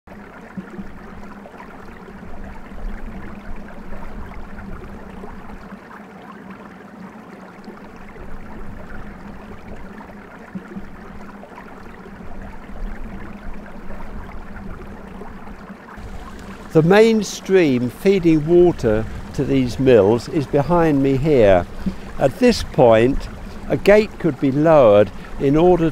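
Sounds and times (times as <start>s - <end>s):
stream trickling over stones: 0.1s - 25.9s
steady low hum: 7.8s - 25.9s.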